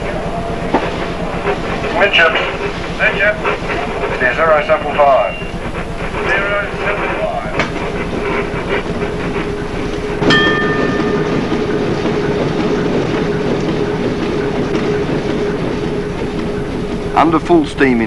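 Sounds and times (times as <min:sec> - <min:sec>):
ship machinery running: 0:00.0 - 0:18.0
short ringing sound: 0:10.3 - 0:11.3.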